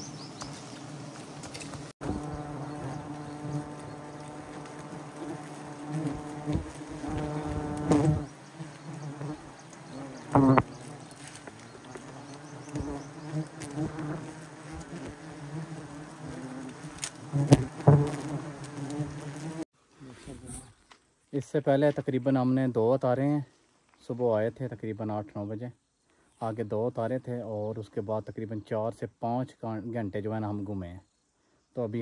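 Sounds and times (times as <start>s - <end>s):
bees buzzing: 0.0s - 19.7s.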